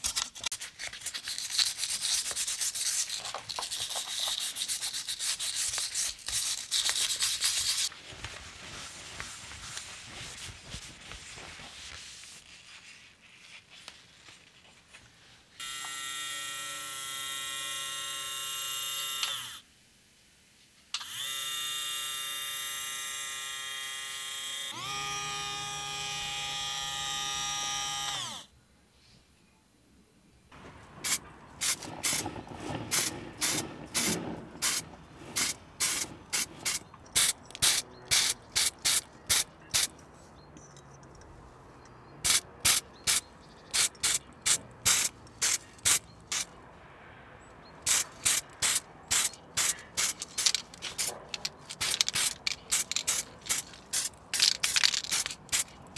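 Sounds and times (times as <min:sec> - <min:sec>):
small electric motor whine: 0:15.6 - 0:19.6, 0:21.0 - 0:28.5.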